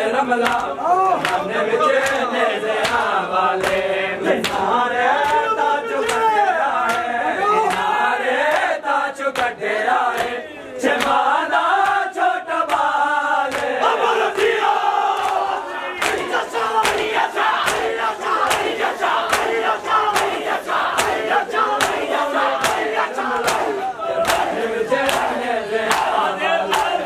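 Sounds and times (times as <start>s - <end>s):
crowd of men chanting: 0.0s - 27.0s
hands slapping bare chests: 0.4s - 1.4s, 2.0s - 3.8s, 4.4s - 4.6s, 5.2s - 7.1s, 13.5s - 27.0s.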